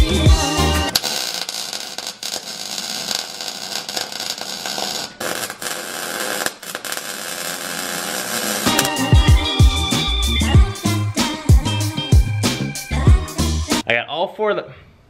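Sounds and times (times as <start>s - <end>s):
welder arc crackling: 0.8s - 9.2s.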